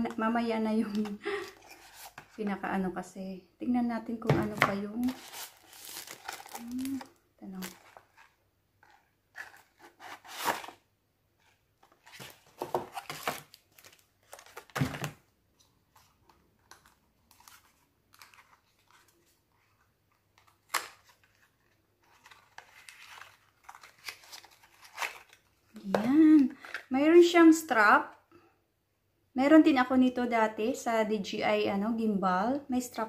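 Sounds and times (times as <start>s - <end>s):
packaging rustling: 0.9s - 2.4s, 5.0s - 10.8s, 11.5s - 25.6s.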